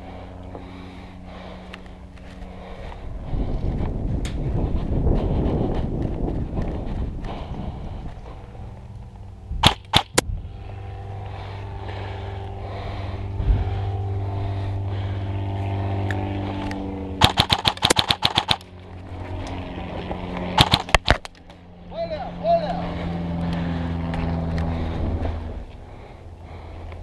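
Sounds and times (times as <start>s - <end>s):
steady low hum: 0.0s - 27.0s
airsoft rifle shots: 9.6s - 10.2s, 17.2s - 18.7s, 20.6s - 21.3s.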